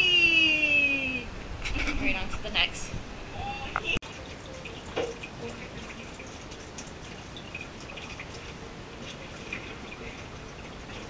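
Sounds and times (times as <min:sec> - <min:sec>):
water dripping and splashing: 0:04.0 - 0:11.0.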